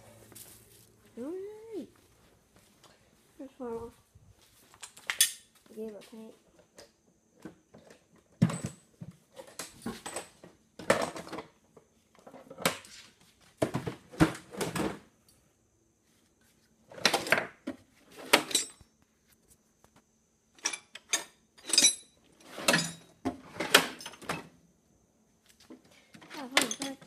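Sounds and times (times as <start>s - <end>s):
tools and metal clattering: 4.7s - 5.6s, 7.7s - 11.6s, 16.9s - 18.9s, 20.5s - 24.6s, 25.8s - 27.0s.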